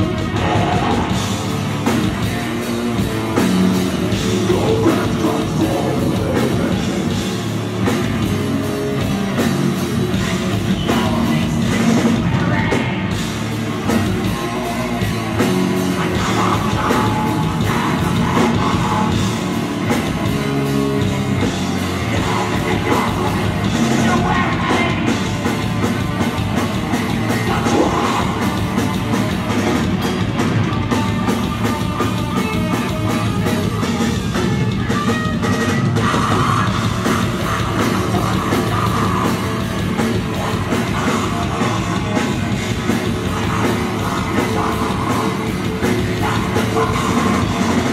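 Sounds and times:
person singing: 0:00.0 - 0:01.5, 0:04.1 - 0:07.4, 0:10.1 - 0:13.3, 0:13.9 - 0:19.4, 0:21.0 - 0:25.7, 0:27.0 - 0:29.4, 0:35.4 - 0:47.9
drum kit: 0:00.0 - 0:47.9
electric guitars: 0:00.0 - 0:47.9.

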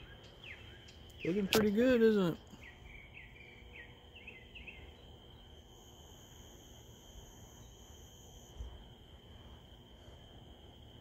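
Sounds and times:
bird chirps: 0:00.0 - 0:06.5
higher insect buzz: 0:00.0 - 0:11.0
night insects trilling: 0:00.0 - 0:11.0.

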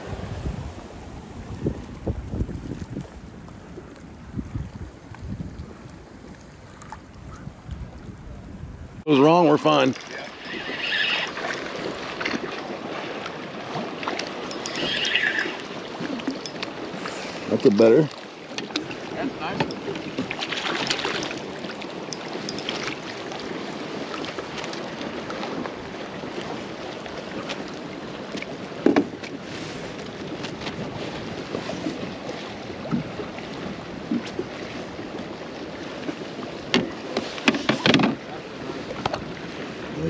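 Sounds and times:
wind on microphone: 0:00.0 - 0:17.6, 0:18.8 - 0:27.7
water lapping against kayak hull: 0:00.0 - 0:40.0
splashes and knocks: 0:18.5 - 0:25.7, 0:36.1 - 0:38.3.

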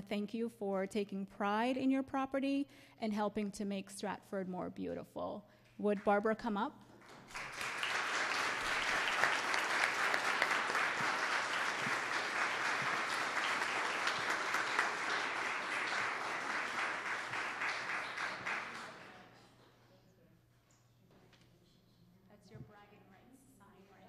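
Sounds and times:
audience applauding: 0:07.0 - 0:19.4.

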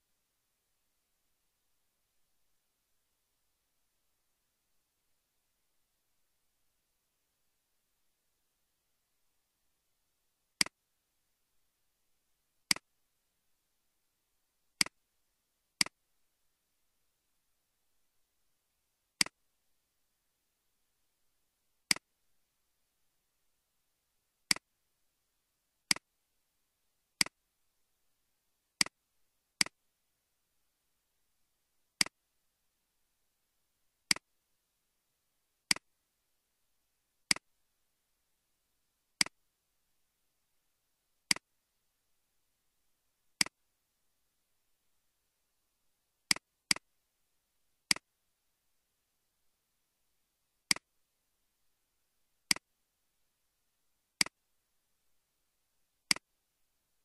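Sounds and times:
computer mouse clicks: 0:12.7 - 0:12.9, 0:46.3 - 0:46.9, 0:47.9 - 0:48.1, 0:50.7 - 0:50.9, 0:52.5 - 0:52.7, 0:56.1 - 0:56.3.

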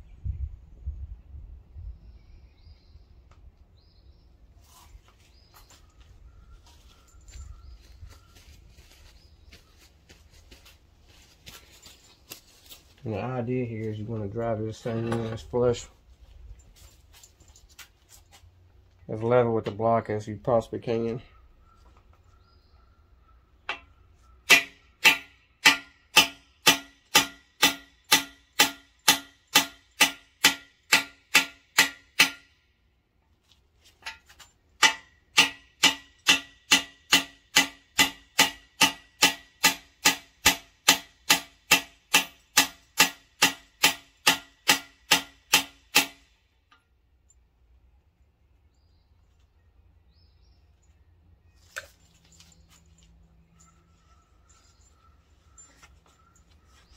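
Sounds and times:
hammer striking metal tool: 0:24.5 - 0:32.5, 0:34.8 - 0:46.2.

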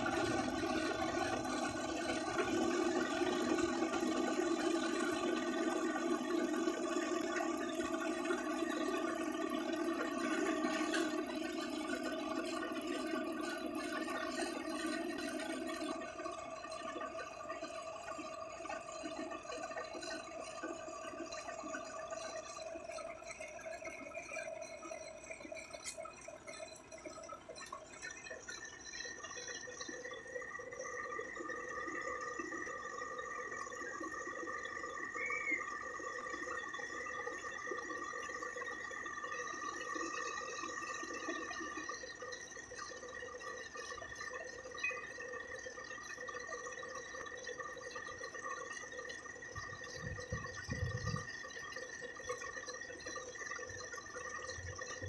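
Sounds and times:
truck engine humming: 0:00.0 - 0:18.8.

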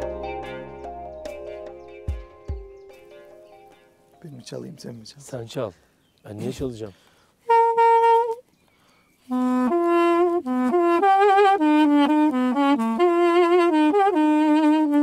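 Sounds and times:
double-reed pipe melody: 0:00.0 - 0:04.7, 0:07.4 - 0:08.5, 0:09.2 - 0:15.0.

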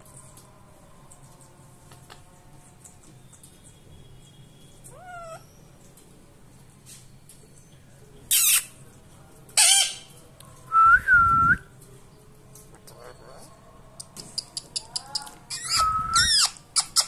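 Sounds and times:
parakeet harsh screeches: 0:08.3 - 0:08.8, 0:15.0 - 0:17.0
parakeet whistling: 0:15.5 - 0:16.5.

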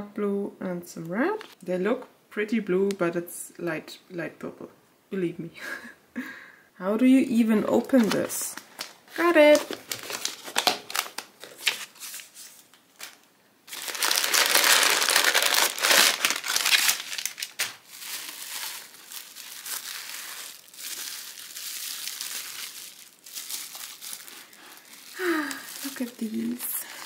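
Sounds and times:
tissue paper and bubble wrap crinkling: 0:07.6 - 0:27.0.

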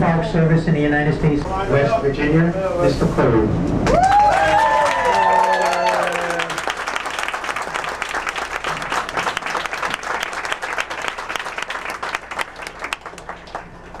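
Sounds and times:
crowd applauding: 0:03.8 - 0:14.0
hands clapping close by: 0:06.1 - 0:14.0.

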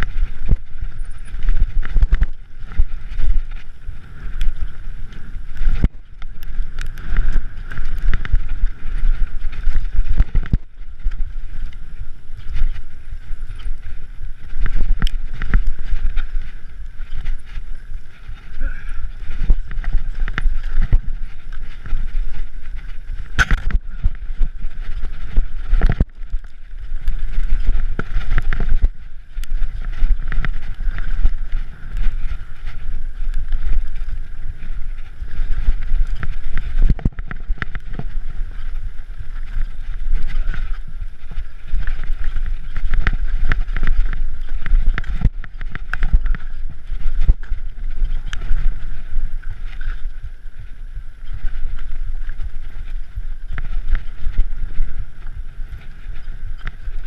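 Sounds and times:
bike rumbling over stony trail: 0:00.0 - 0:57.0
bike knocks and rattles: 0:18.3 - 0:50.0.

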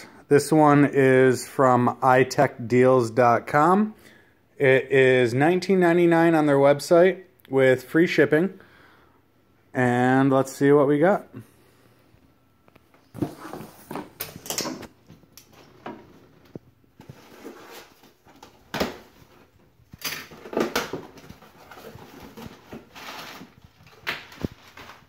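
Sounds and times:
cardboard flaps rustling: 0:13.0 - 0:25.0
packing tape tearing: 0:20.0 - 0:25.0.

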